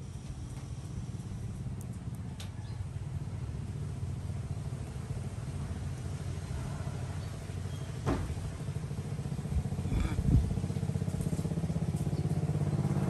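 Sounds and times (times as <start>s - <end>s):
small engine running: 8.6s - 13.0s.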